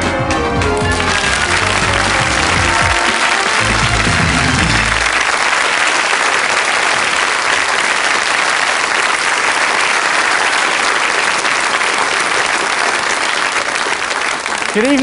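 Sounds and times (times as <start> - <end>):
music: 0.0 - 5.2
audience applauding: 0.6 - 15.0.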